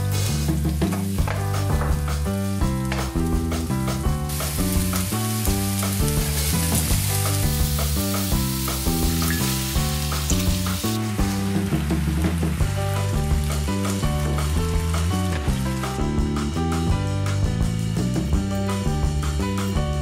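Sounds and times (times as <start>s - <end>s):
food sizzling in a frying pan: 0.0s - 16.5s
background music with bass line: 0.0s - 20.0s.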